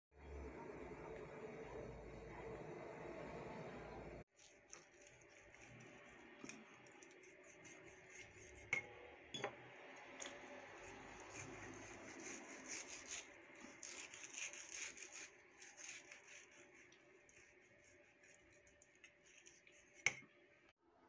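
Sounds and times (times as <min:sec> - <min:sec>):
knife scraping through meat: 0:04.4 - 0:08.8, 0:10.8 - 0:20.2.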